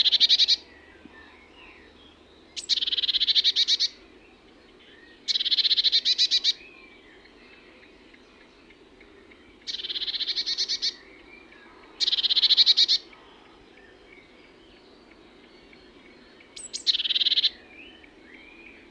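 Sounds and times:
bird singing high trills: 0:00.0 - 0:04.1, 0:09.6 - 0:13.2, 0:13.8 - 0:18.9.

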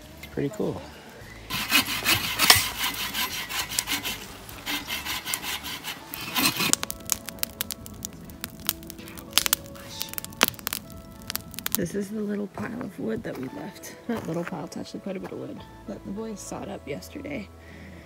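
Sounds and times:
campfire crackling and popping: 0:00.0 - 0:17.4
hand saws cutting log: 0:01.5 - 0:07.1.

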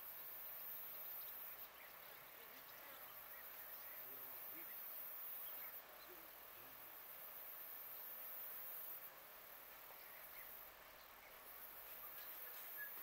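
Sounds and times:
faint bird chirps: 0:00.0 - 0:06.7, 0:09.8 - 0:13.0.

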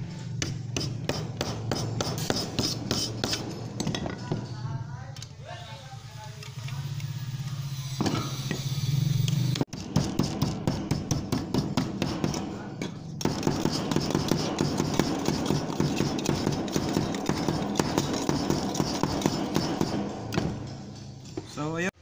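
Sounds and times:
hammer tapping on sheet metal: 0:09.6 - 0:21.4.

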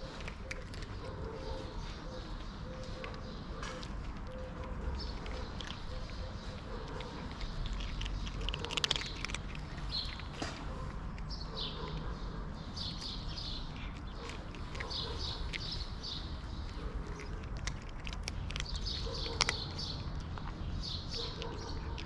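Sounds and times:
cats crunching kibble: 0:00.0 - 0:22.0
small birds chirping: 0:00.0 - 0:22.0.

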